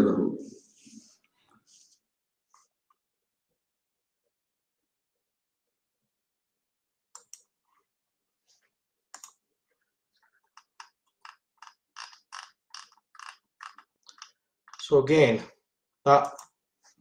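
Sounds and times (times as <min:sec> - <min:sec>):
computer mouse clicking: 0:07.2 - 0:07.5, 0:09.1 - 0:09.4, 0:10.5 - 0:14.8, 0:16.2 - 0:16.6.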